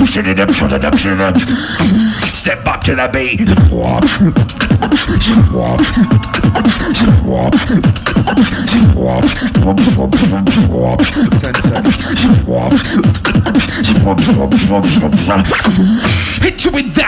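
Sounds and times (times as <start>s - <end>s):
vocal beatboxing: 0.0s - 17.0s
gliding deep bass notes: 3.4s - 11.0s.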